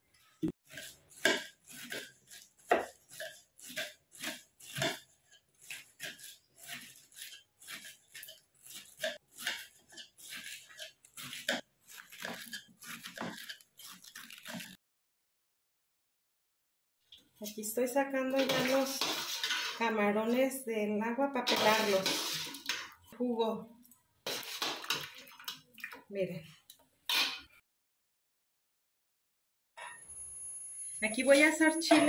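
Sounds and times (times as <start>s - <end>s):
knife cutting cabbage on board: 0.7s - 14.7s.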